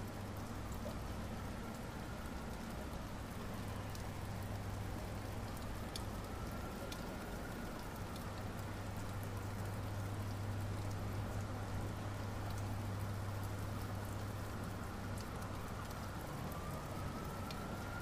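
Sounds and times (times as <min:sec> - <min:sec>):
dripping ticks: 0:00.0 - 0:18.0
steady rain falling: 0:00.0 - 0:18.0.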